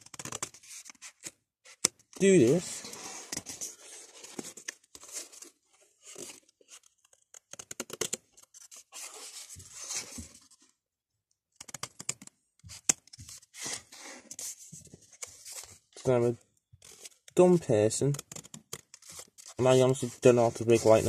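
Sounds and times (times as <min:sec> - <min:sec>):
card rustling: 0:00.0 - 0:10.6, 0:18.2 - 0:21.0.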